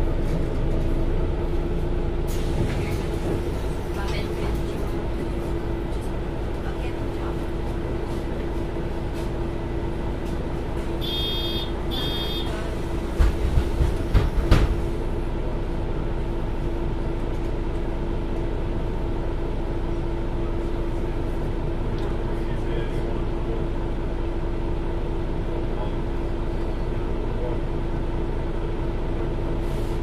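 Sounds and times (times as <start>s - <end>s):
bus engine drone: 0.0s - 30.0s
short electronic beeps: 11.0s - 12.5s
loud thumps and knocks: 13.1s - 14.8s.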